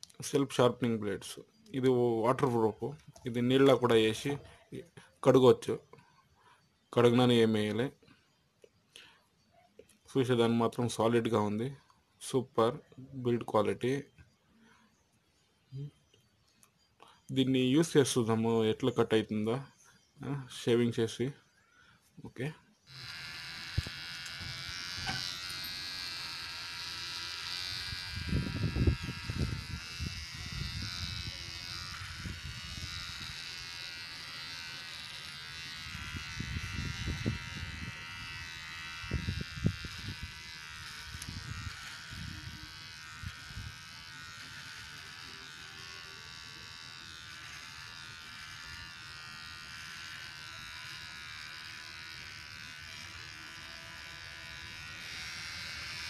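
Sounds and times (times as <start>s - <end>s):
beard trimmer buzzing: 22.8s - 56.0s.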